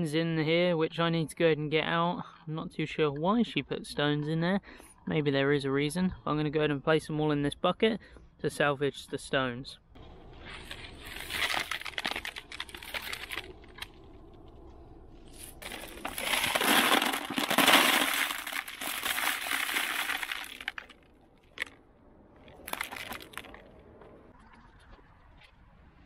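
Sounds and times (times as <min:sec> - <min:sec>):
stones rattling: 0:10.7 - 0:21.8, 0:22.4 - 0:23.7
stones pouring into plastic bucket: 0:11.0 - 0:13.5, 0:15.5 - 0:21.0, 0:22.6 - 0:23.6.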